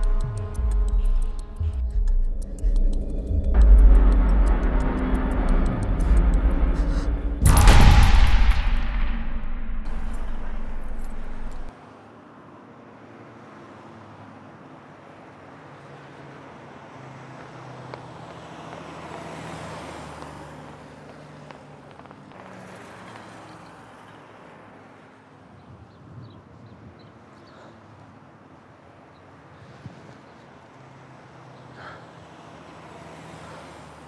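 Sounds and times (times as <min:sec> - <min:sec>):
road traffic noise: 0:00.0 - 0:34.0
loud low rumble: 0:01.7 - 0:11.7
car passing by: 0:03.2 - 0:25.4, 0:27.3 - 0:34.0.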